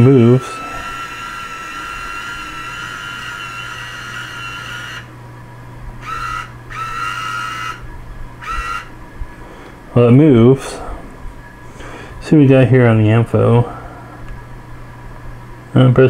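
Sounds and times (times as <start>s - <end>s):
telescope mount motors whining: 0.0s - 5.2s, 6.0s - 9.5s
low steady hum: 0.0s - 16.0s.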